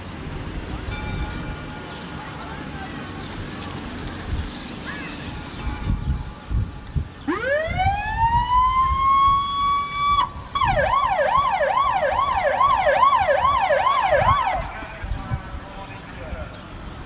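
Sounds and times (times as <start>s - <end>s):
emergency vehicle siren: 7.2s - 16.1s.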